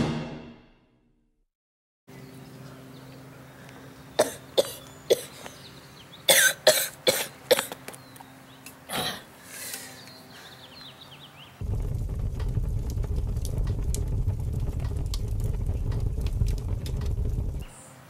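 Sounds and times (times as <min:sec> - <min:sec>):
boy coughing: 0:04.2 - 0:05.4, 0:06.3 - 0:07.8.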